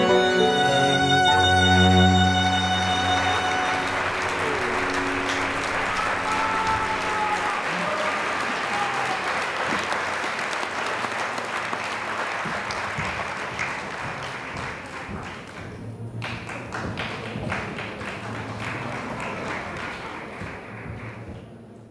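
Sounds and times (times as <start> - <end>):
audience applauding: 0.0 - 21.6.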